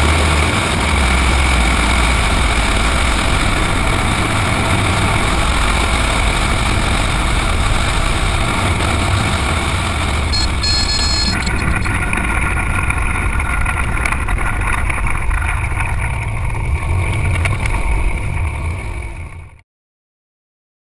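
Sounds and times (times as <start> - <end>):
light aircraft engine and propeller: 0.0 - 19.6
brief high tone: 10.3 - 12.0.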